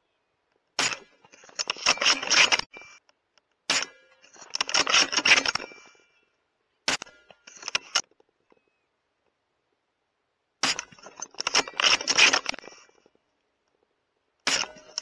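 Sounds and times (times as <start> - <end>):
rifle bolt clicks and scrapes: 0.8 - 6.1, 6.9 - 8.7, 10.6 - 15.0
suppressed rifle shots: 3.7 - 4.0, 14.4 - 15.0.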